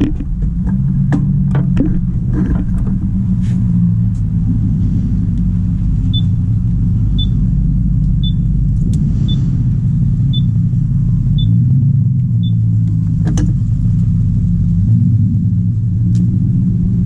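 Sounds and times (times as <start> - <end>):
scooter engine idling: 5.3 - 8.7.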